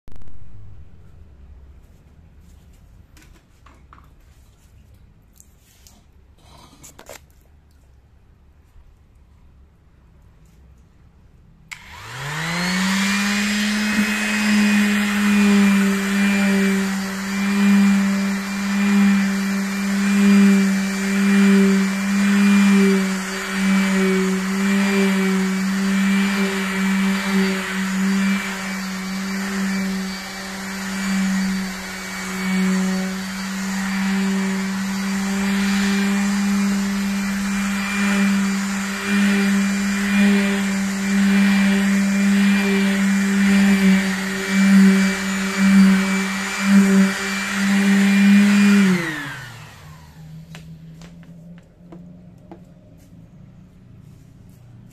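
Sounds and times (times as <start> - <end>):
pneumatic sander running: 11.7 - 50.8.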